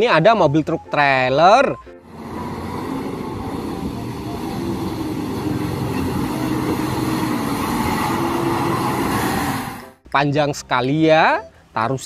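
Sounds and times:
truck engine running: 2.0 - 10.0.

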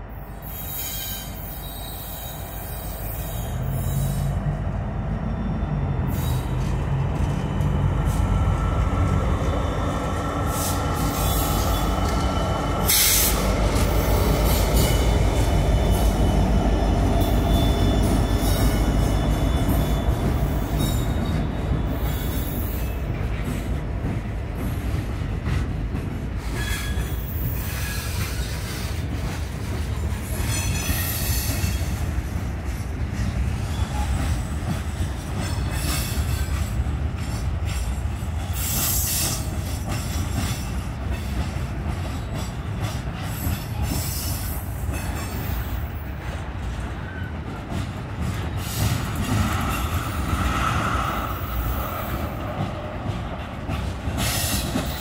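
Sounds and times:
diesel locomotives passing: 0.0 - 55.0
high wheel squeal: 0.4 - 4.4, 17.2 - 23.0.

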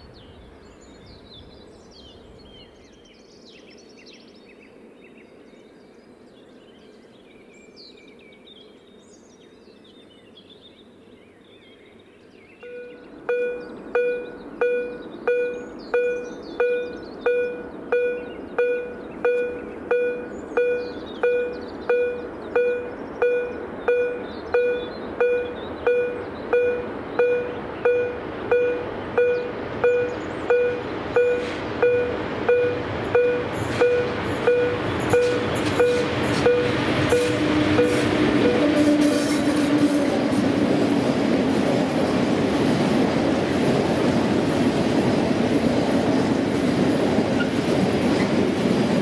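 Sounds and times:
crossing warning bell dinging: 12.6 - 40.3
freight train rumble: 12.6 - 49.0.

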